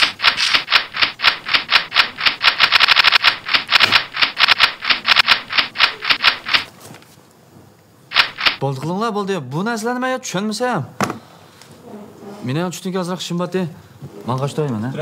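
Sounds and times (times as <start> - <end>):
fast rhythmic scraping: 0.0 - 6.7.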